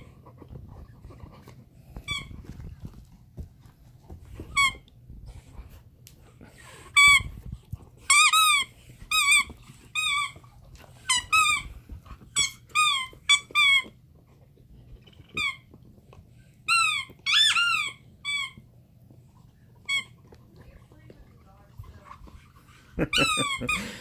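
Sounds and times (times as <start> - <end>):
squeaky toy squeaking: 8.1 - 10.4, 11.0 - 11.7, 12.3 - 13.9, 16.7 - 18.6, 19.9 - 20.1.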